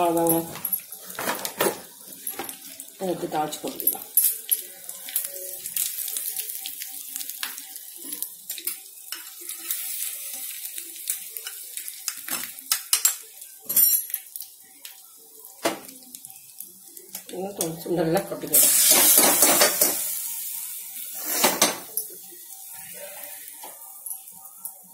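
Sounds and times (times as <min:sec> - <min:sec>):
spices sizzling in hot oil: 0:00.0 - 0:24.9
pan and spoon clinking: 0:11.4 - 0:14.3, 0:18.6 - 0:20.2.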